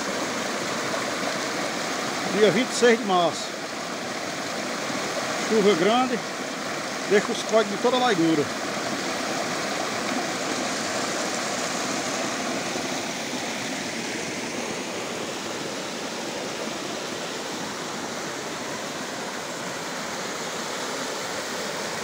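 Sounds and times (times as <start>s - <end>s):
water rushing over rock: 0.0s - 22.0s.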